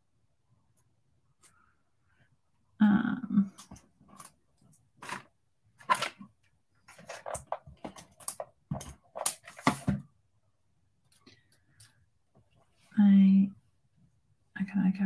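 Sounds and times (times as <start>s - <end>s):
paper rustling: 6.9s - 8.4s.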